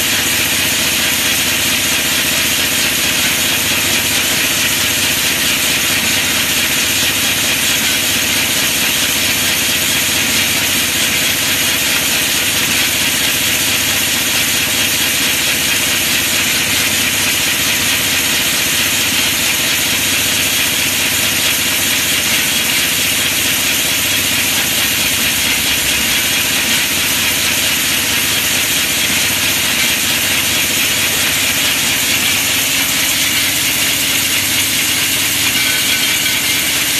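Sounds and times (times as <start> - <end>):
cap folding machine clattering: 13.5 - 36.9.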